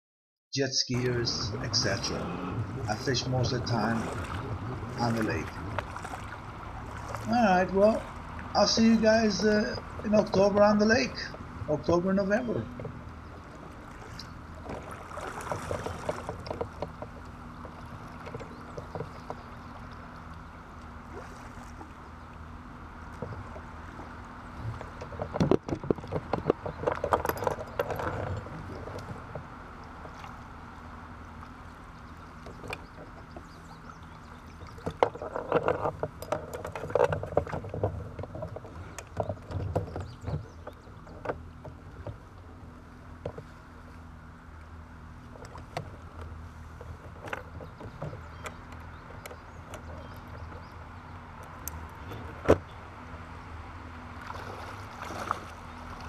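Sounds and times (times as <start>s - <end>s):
steady low hum: 0.6s - 56.0s
water splashing: 0.9s - 42.8s, 53.1s - 56.0s
kayak paddle strokes: 1.0s - 56.0s
knocks against plastic hull: 24.8s - 27.2s.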